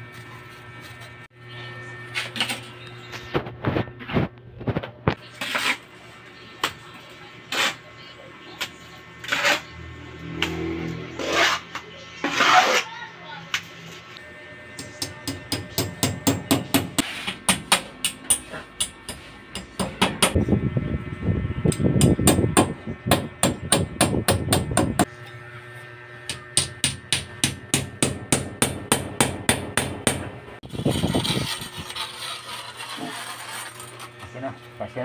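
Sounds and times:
trowel slapping and scraping mortar: 0:11.2 - 0:12.9, 0:30.6 - 0:34.2.

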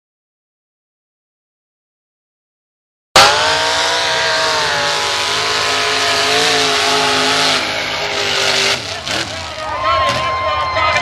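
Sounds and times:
car engine at high revs: 0:03.2 - 0:10.3.

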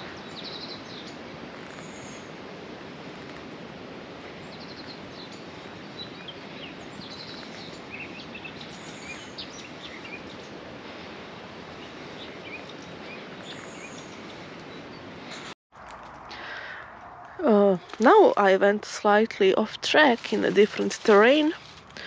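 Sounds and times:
small birds chirping: 0:00.0 - 0:03.6, 0:04.2 - 0:15.6.

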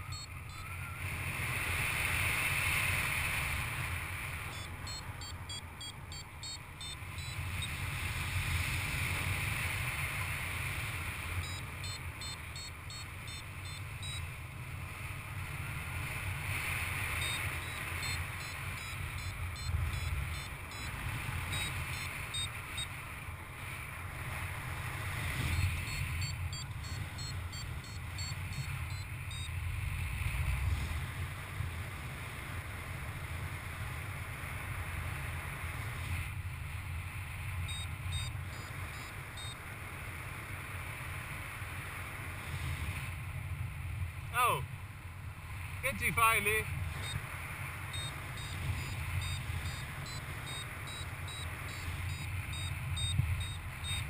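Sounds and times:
quick high beeps: 0:00.0 - 0:00.9, 0:04.5 - 0:07.8, 0:11.4 - 0:14.3, 0:17.2 - 0:23.0, 0:25.4 - 0:29.5, 0:37.7 - 0:39.6, 0:45.9 - 0:47.2, 0:47.9 - 0:54.0.

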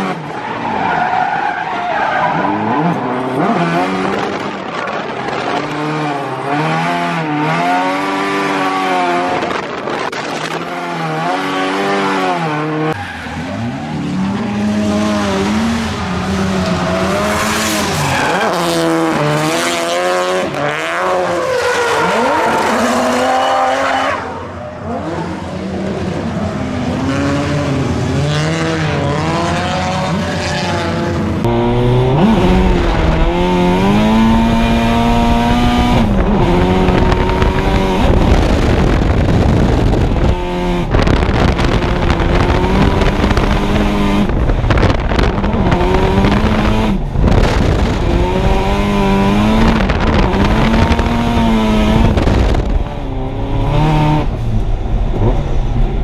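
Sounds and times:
car engine revving hard: 0:26.8 - 0:54.4.

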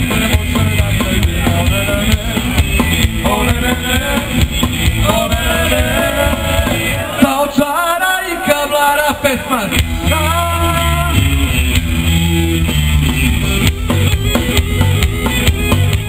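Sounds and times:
person singing: 0:00.0 - 0:04.4, 0:05.0 - 0:11.3
live rock band: 0:00.0 - 0:16.0.

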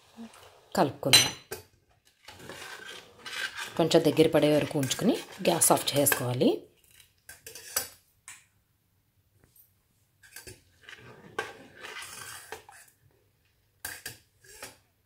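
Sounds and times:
metal spoon scraping a pot: 0:00.0 - 0:08.0, 0:10.2 - 0:13.0, 0:13.8 - 0:14.9.

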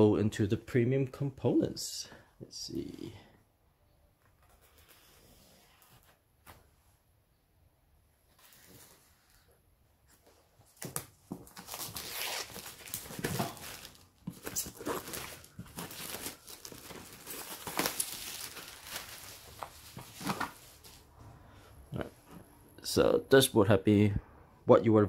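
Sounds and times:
shrink-wrap crinkling and tearing: 0:10.9 - 0:21.0.

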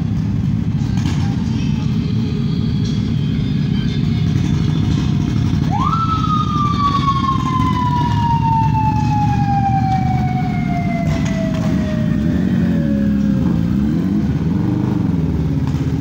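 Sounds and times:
motorcycle engines rumbling: 0:00.0 - 0:16.0
motorcycle siren: 0:02.4 - 0:14.0.

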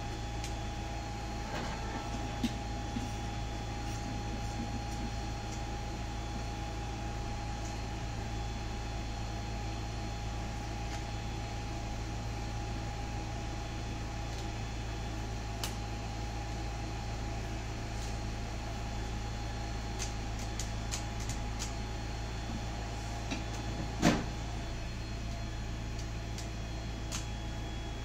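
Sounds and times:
low electrical hum: 0:00.0 - 0:28.0.

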